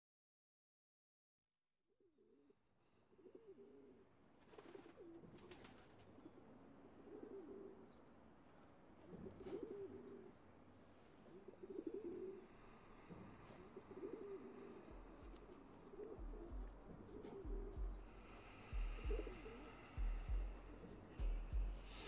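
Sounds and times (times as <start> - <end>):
pigeons cooing: 3.1 - 8.0, 9.0 - 10.4, 11.2 - 12.5, 13.1 - 18.0.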